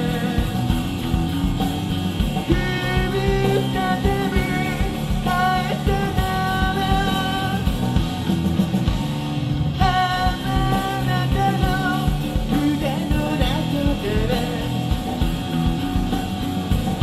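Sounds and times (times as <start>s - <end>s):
person singing: 0.0s - 0.8s, 2.5s - 7.9s, 9.8s - 15.1s
bass guitar: 0.0s - 17.0s
electric guitars: 0.0s - 17.0s
steady drumbeat: 0.0s - 17.0s.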